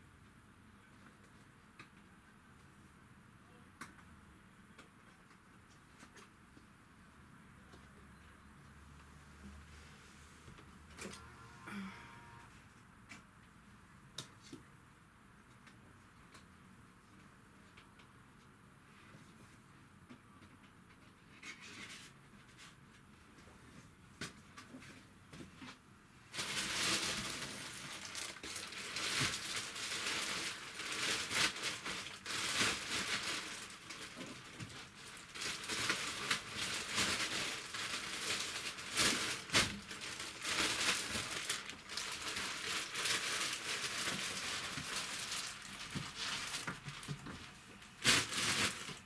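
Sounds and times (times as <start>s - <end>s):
plastic bag crinkling: 26.3s - 49.0s.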